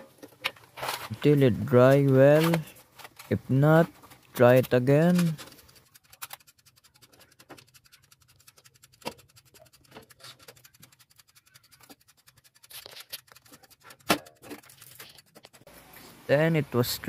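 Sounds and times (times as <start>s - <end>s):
fast faint ticking: 3.9s - 15.7s.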